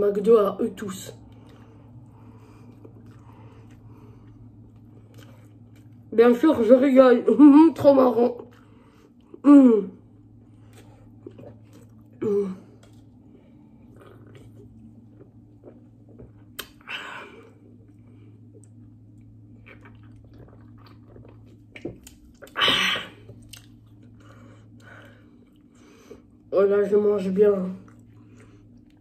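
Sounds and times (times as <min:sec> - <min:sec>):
steady low hum: 0:00.0 - 0:29.0
person chewing: 0:01.2 - 0:06.1, 0:10.1 - 0:26.4, 0:27.8 - 0:29.0.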